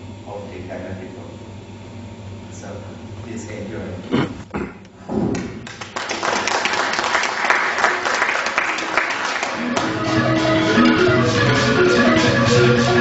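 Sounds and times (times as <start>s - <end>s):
audience applauding: 5.6s - 11.8s
log xylophone notes: 9.6s - 13.0s.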